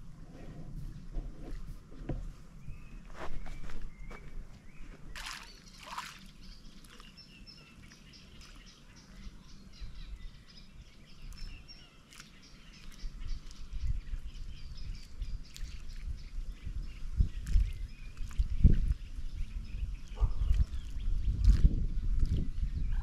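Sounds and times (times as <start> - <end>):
wind rumble on microphone: 0.0 - 5.2, 9.0 - 11.8, 12.6 - 23.0
small birds chirping: 0.8 - 23.0.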